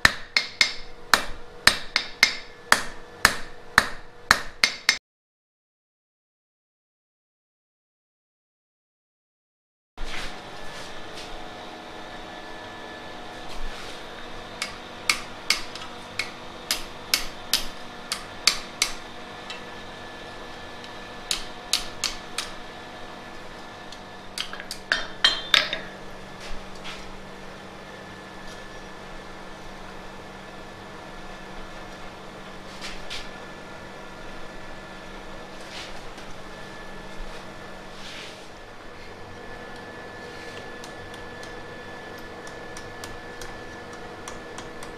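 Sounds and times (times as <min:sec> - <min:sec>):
steady hum: 0:00.0 - 0:04.7, 0:10.0 - 0:44.9
hammer striking iron on anvil: 0:00.0 - 0:05.0, 0:14.6 - 0:19.7, 0:21.2 - 0:22.6, 0:24.4 - 0:26.0.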